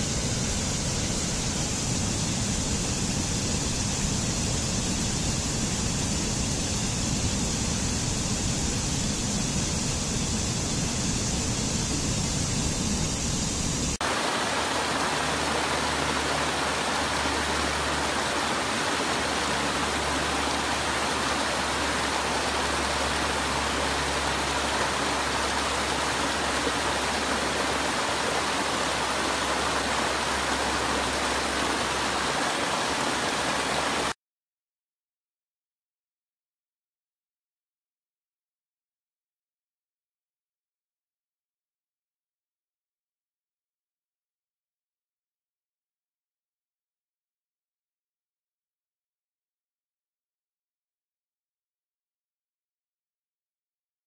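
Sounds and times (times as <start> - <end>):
stream rushing over boulders: 14.0 - 34.2.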